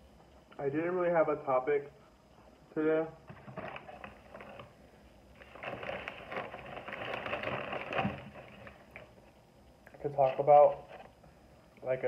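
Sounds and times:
paper napkin crinkling: 5.4 - 9.1.

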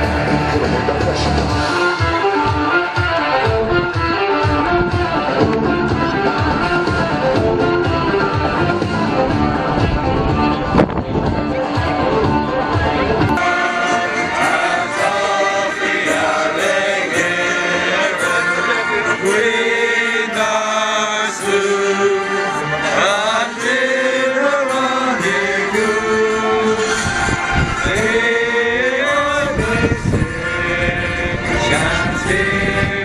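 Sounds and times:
men singing an anthem: 13.4 - 33.0.

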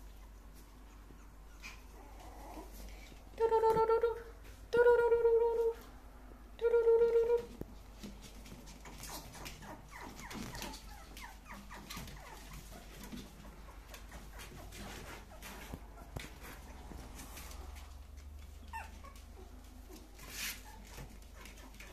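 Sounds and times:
puppies whimpering: 0.0 - 2.9, 8.8 - 16.9, 18.4 - 21.9.

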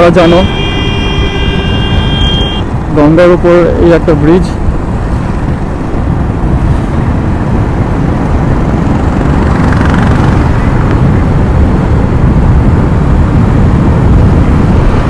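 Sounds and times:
motorcycle engine and road noise: 0.0 - 15.0
wind rumbling over microphone: 0.0 - 15.0.

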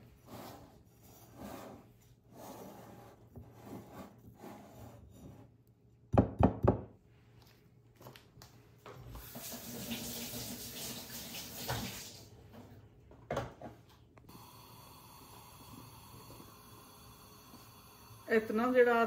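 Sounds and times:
kitchen tap running: 9.2 - 12.4.

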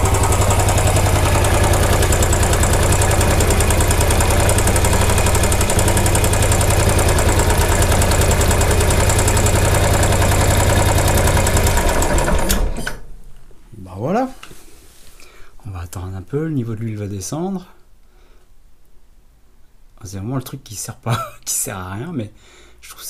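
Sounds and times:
motorcycle engine idling: 0.0 - 12.4.

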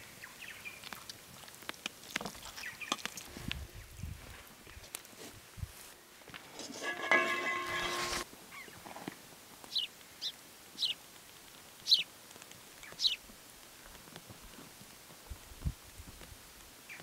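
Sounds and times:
small bird chirping: 9.7 - 11.0, 11.8 - 12.1, 12.8 - 13.2.

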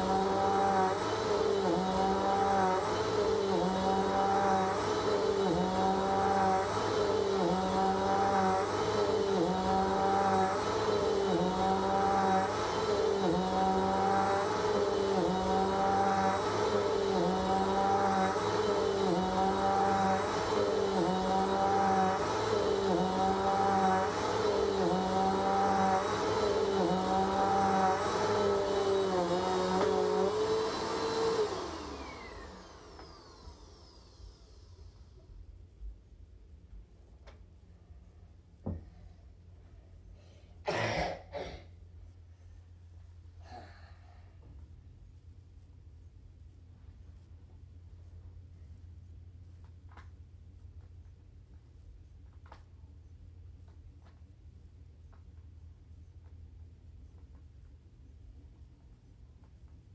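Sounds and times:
vacuum cleaner running on carpet: 0.0 - 35.4
vacuum motor winding down: 0.0 - 35.4.

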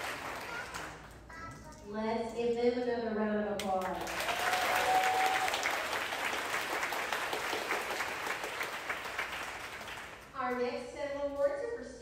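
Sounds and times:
audience applauding: 0.0 - 1.0, 4.0 - 10.3.

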